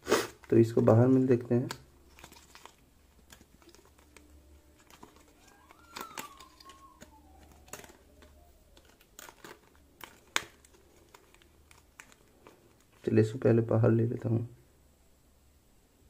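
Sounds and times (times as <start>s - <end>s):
cardboard crinkling and clicks: 0.4s - 13.1s.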